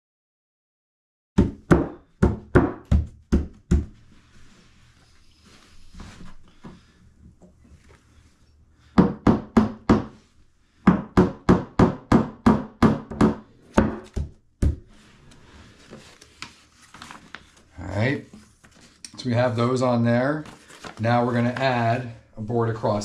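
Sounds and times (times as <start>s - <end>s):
hammer striking wooden board: 1.4s - 3.9s, 9.0s - 10.1s, 10.9s - 14.8s.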